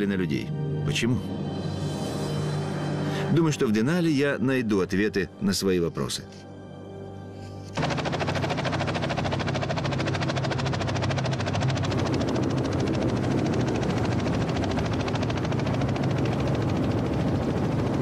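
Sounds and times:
low engine drone: 0:06.7 - 0:18.0
helicopter rotor chop: 0:07.8 - 0:18.0.

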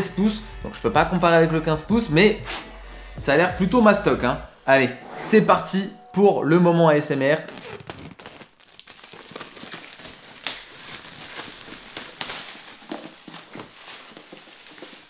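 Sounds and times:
plastic shrink-wrap crinkling: 0:07.3 - 0:15.0.

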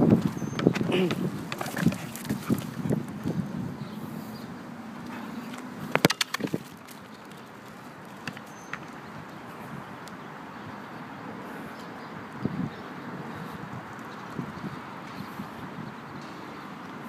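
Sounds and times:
city traffic: 0:00.0 - 0:17.0
ball bouncing: 0:05.9 - 0:07.1
soccer ball kicked on asphalt: 0:05.9 - 0:07.1.

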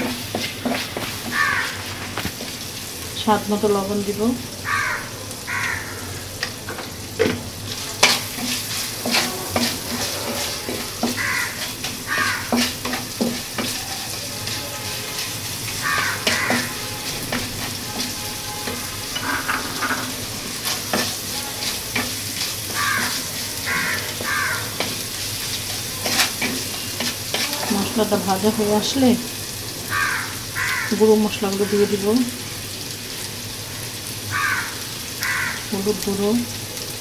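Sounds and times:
spatula scraping pan: 0:00.0 - 0:02.6, 0:07.2 - 0:29.0
onions sizzling in hot oil: 0:00.0 - 0:37.0.

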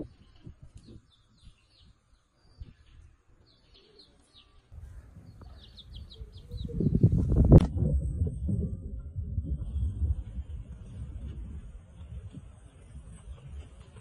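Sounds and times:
small birds chirping: 0:00.0 - 0:07.6
low rumbling noise: 0:04.8 - 0:14.0.

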